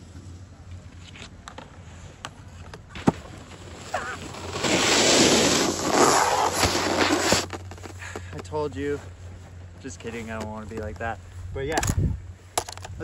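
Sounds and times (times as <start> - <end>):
snowboard edge scraping snow: 3.0 - 10.6.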